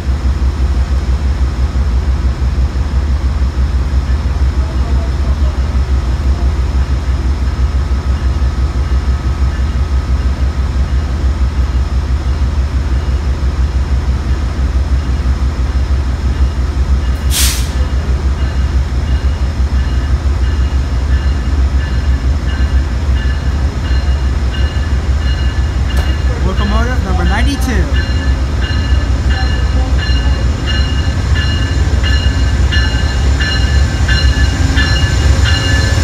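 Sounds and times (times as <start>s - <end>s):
diesel locomotive engine rumble: 0.0s - 36.0s
short burst of hiss: 17.2s - 17.9s.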